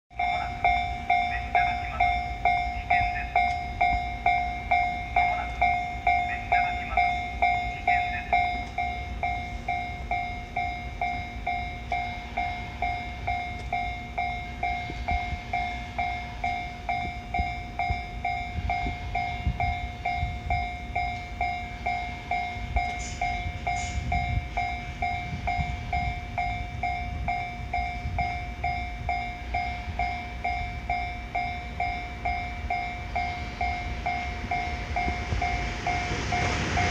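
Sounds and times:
railway crossing bell ringing: 0:00.1 - 0:36.9
low rumble: 0:13.8 - 0:36.9.

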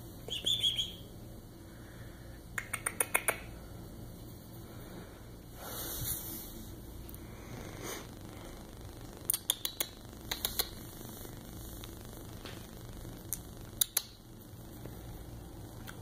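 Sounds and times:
finger snaps: 0:02.6 - 0:03.5, 0:09.3 - 0:10.8, 0:13.3 - 0:14.2.

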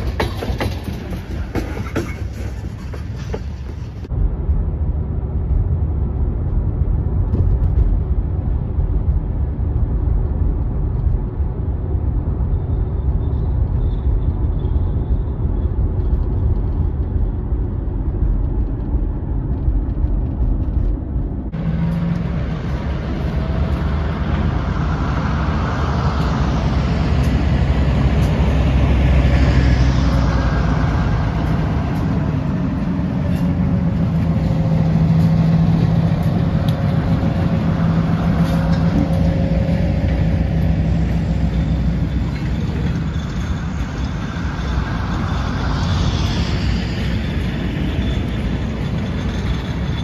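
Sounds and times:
wheels clicking and clanking: 0:00.0 - 0:04.2, 0:12.6 - 0:50.0
locomotive engine humming: 0:00.0 - 0:50.0
road noise inside car: 0:00.0 - 0:50.0
thin drawn-out squeal: 0:40.6 - 0:50.0.

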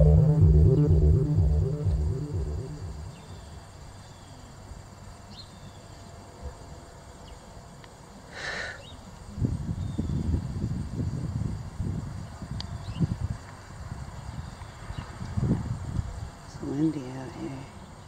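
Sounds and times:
harsh call: 0:00.0 - 0:03.2
music with low pulsing beat: 0:00.0 - 0:03.4.

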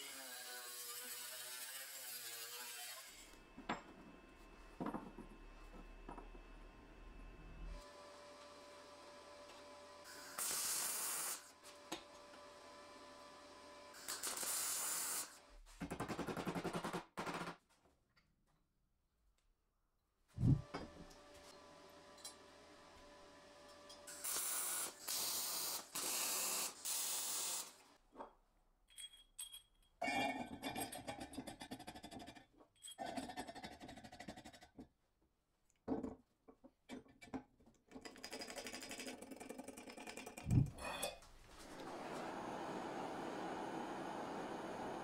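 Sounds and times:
metal clinks and knocks: 0:28.8 - 0:30.0.

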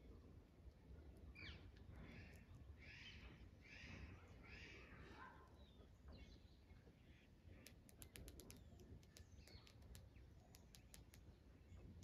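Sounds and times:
faint birds chirping: 0:00.0 - 0:12.0
faint high ticks: 0:07.6 - 0:11.3.

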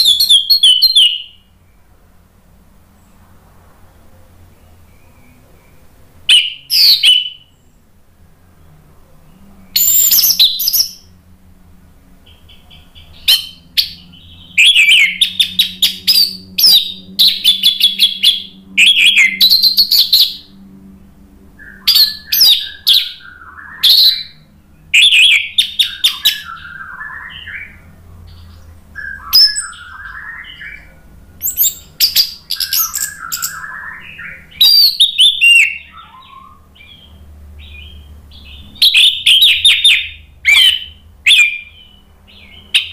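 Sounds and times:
thrush singing high whistles: 0:00.0 - 0:01.6, 0:04.8 - 0:07.7, 0:09.6 - 0:11.2, 0:12.3 - 0:20.6, 0:21.6 - 0:37.0.

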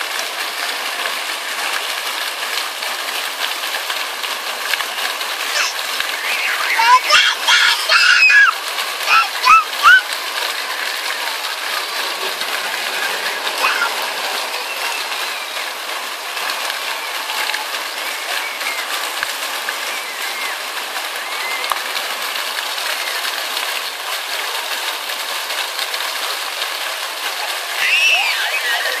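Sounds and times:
fountain jets spraying: 0:00.0 - 0:29.0
faint children's voices: 0:05.4 - 0:25.1, 0:27.0 - 0:29.0
child squealing: 0:05.5 - 0:10.1, 0:13.6 - 0:14.1, 0:27.8 - 0:29.0.

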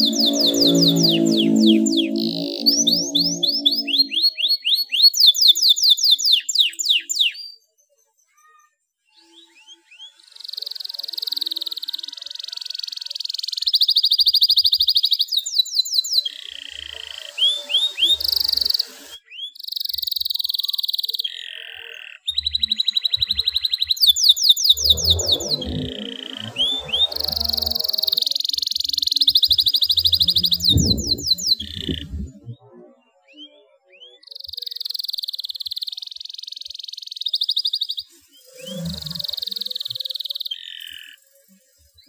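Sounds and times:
canary singing trills: 0:00.0 - 0:07.6, 0:09.2 - 0:41.2.

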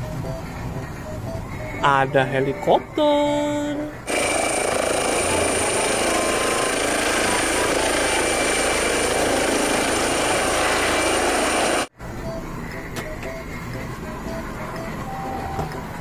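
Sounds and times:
toy helicopter rotor whirring: 0:04.0 - 0:11.9.

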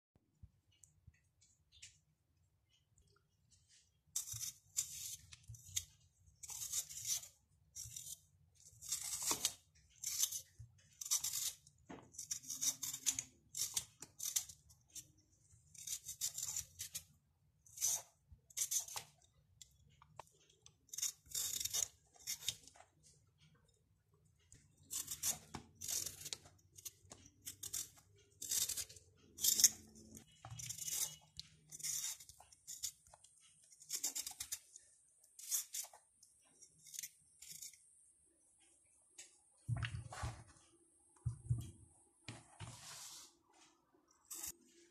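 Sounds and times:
peeler scraping potato skin: 0:04.1 - 0:22.9, 0:24.7 - 0:37.9, 0:44.2 - 0:44.6.

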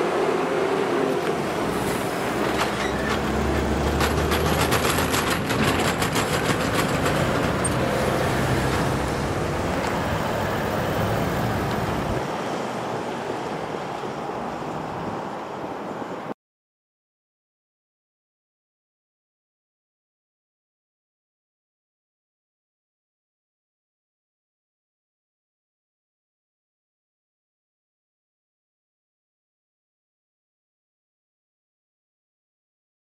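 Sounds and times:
truck diesel engine and tyres: 0:00.0 - 0:16.3.

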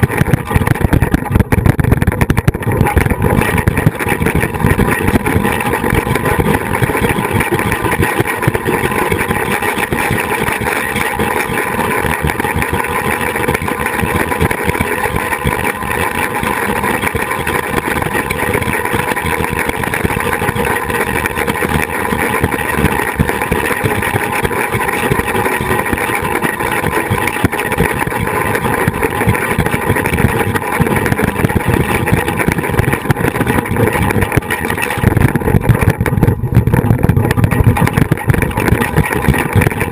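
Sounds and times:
wind buffeting camera: 0:00.0 - 0:10.6, 0:26.9 - 0:39.9
zipline trolley rumbling on cable: 0:00.0 - 0:39.9.

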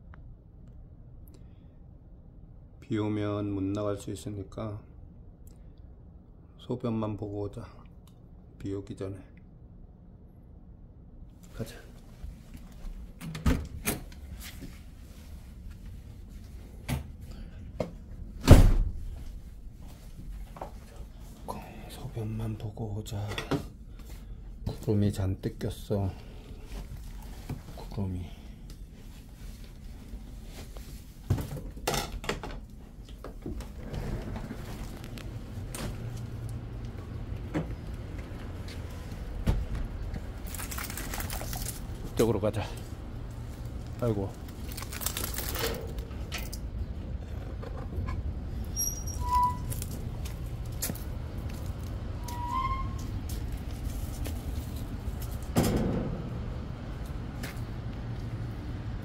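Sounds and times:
steady low rumble: 0:00.0 - 0:31.3, 0:32.6 - 0:48.9, 0:49.5 - 0:52.3, 0:52.9 - 0:59.0
door being handled and opened: 0:13.2 - 0:14.2
door thump: 0:18.4 - 0:19.0, 0:55.6 - 0:56.3.

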